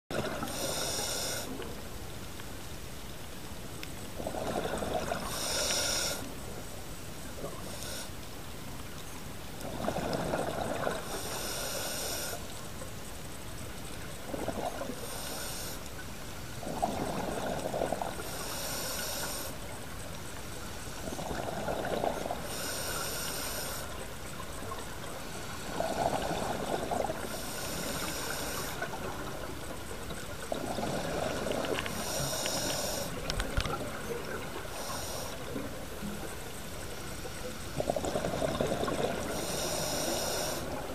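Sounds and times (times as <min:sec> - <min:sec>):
regulator inhalation hiss: 0:00.4 - 0:01.6, 0:05.2 - 0:06.4, 0:07.6 - 0:08.2, 0:11.0 - 0:12.5, 0:15.0 - 0:15.9, 0:18.2 - 0:19.6, 0:22.4 - 0:24.0, 0:27.2 - 0:28.9, 0:31.8 - 0:33.2, 0:34.6 - 0:35.5, 0:39.3 - 0:40.8
exhaled bubbles: 0:04.2 - 0:05.6, 0:09.6 - 0:11.2, 0:21.0 - 0:22.7, 0:25.7 - 0:36.2, 0:37.7 - 0:40.9.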